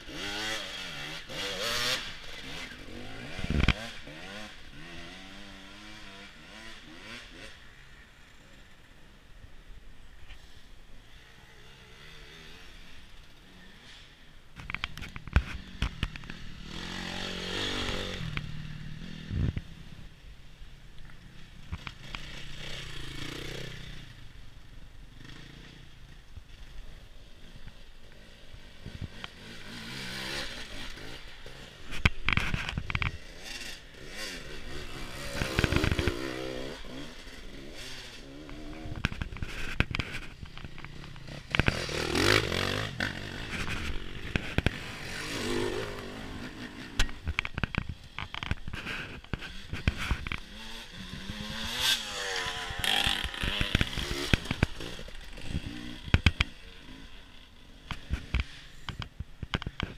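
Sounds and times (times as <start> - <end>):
motorcycle engines revving: 0.0 - 59.9
knocks and scraping near microphone: 31.9 - 33.7, 38.5 - 51.8.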